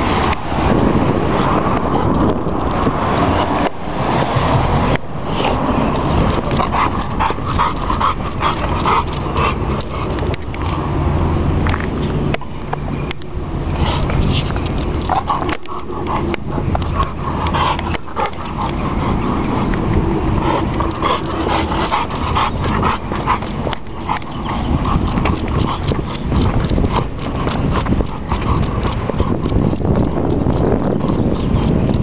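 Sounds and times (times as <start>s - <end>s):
wind rumble on microphone: 0.0s - 32.0s
dog steps on concrete: 1.7s - 10.7s, 11.6s - 32.0s
dog breathing: 5.3s - 11.0s, 13.6s - 32.0s.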